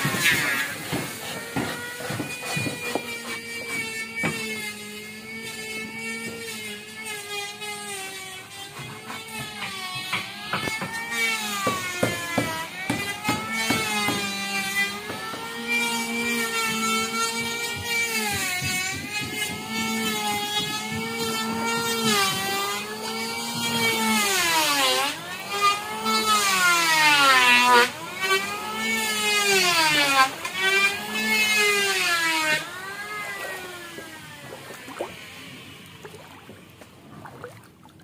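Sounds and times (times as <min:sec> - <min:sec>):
boat engine whining at high revs: 0:18.6 - 0:38.0.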